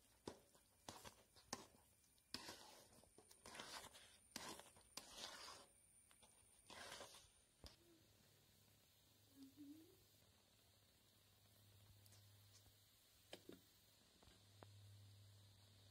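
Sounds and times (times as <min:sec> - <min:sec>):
metal spatula scraping a pan: 0:00.3 - 0:05.8, 0:06.6 - 0:07.3.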